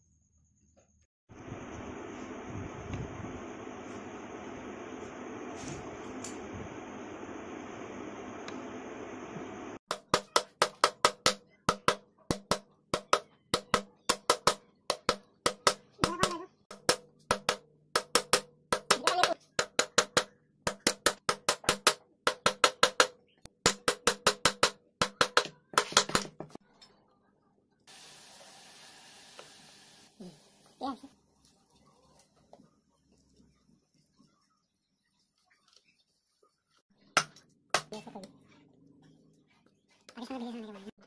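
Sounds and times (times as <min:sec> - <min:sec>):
hammer tapping on metal: 0:09.9 - 0:26.4.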